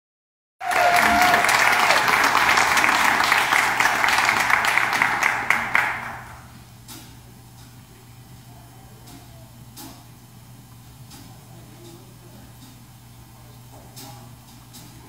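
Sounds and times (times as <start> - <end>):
audience applauding: 0.6 - 6.5.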